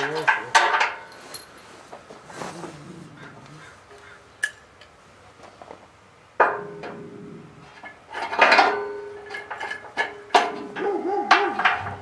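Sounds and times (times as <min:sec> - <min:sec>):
metal clanks: 0:00.0 - 0:01.6, 0:06.4 - 0:07.1, 0:07.7 - 0:12.0.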